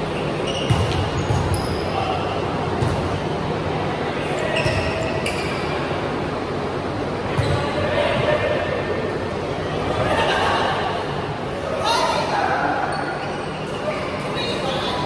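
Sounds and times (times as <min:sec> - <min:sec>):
sneakers squeaking on court: 0:00.0 - 0:02.2, 0:04.4 - 0:05.8
steady background noise: 0:00.0 - 0:15.0.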